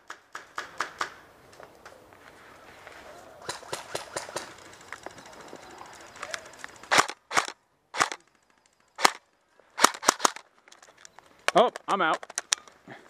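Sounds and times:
airsoft rifle shots: 3.4 - 4.5, 6.9 - 8.2, 9.0 - 9.2, 9.8 - 10.4.

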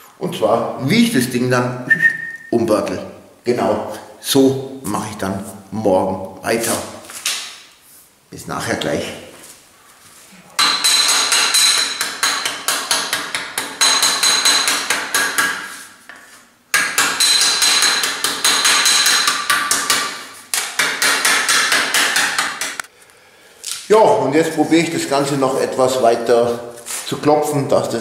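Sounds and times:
hammer beating ringing sheet metal: 10.6 - 15.8, 16.7 - 22.8.

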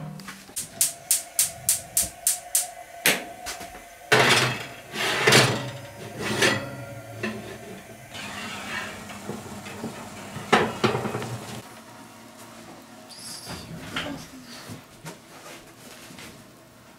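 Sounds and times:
metal tin scraping on oven rack: 4.1 - 11.6.

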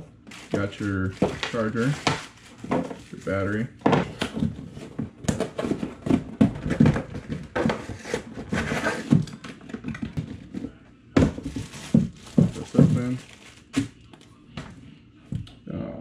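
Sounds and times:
plastic packaging rustling: 0.0 - 4.9, 11.3 - 14.2.

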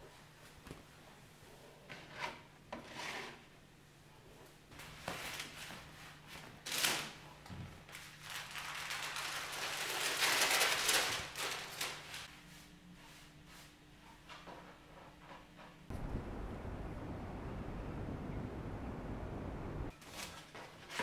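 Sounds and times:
cloth or paper rustling: 7.9 - 12.3.

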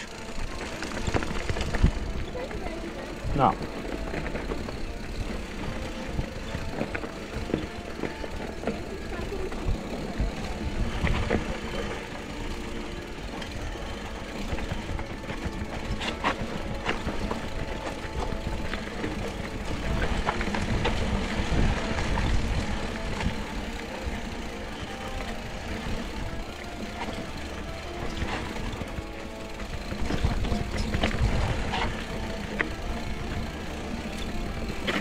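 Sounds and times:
bike rattling over bumps: 0.0 - 35.0
tyres rumbling on dirt: 0.0 - 35.0.

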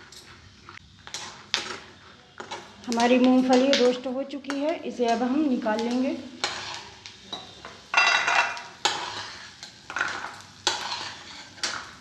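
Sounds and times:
metal spoon clanking on metal pan: 2.4 - 12.0.

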